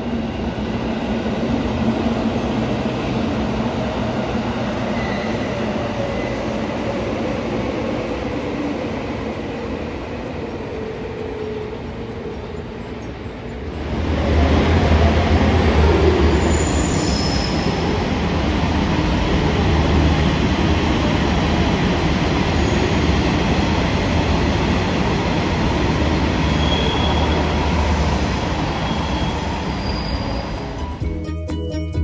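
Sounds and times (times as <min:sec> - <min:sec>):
train running on rails: 0:00.0 - 0:32.0
high-pitched wheel squeals: 0:04.8 - 0:06.6, 0:16.2 - 0:18.0, 0:26.4 - 0:31.0.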